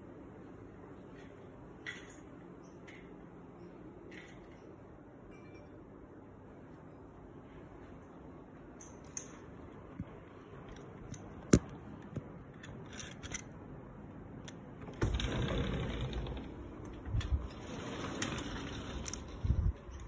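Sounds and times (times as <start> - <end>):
door rattle: 14.8 - 19.7
sliding door scraping on track: 14.9 - 19.7.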